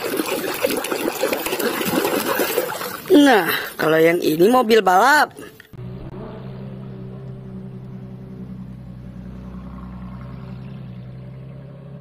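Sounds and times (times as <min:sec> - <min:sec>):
car engine idling: 0:05.8 - 0:12.0.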